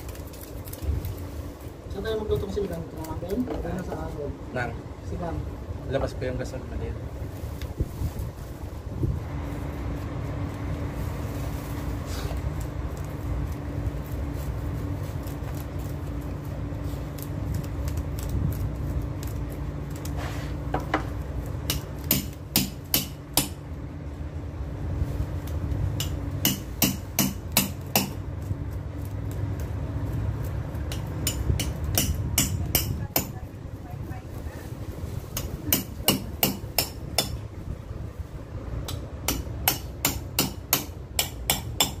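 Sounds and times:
steady low hum: 0.0 - 42.0.

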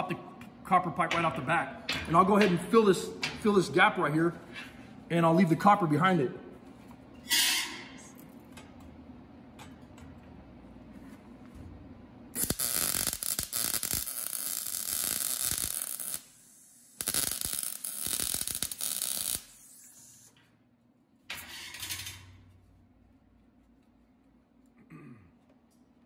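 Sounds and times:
welder arc crackling and sputtering: 12.3 - 20.4.

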